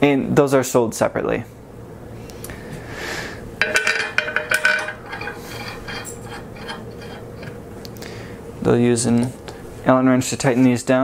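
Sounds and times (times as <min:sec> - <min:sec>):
metal screws clinking on plate: 0:03.6 - 0:07.6.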